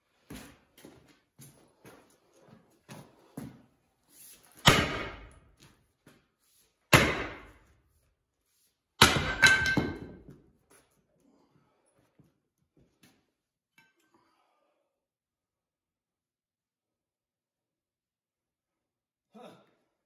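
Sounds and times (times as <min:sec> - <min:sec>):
sledgehammer blows on steel: 0:04.6 - 0:05.4.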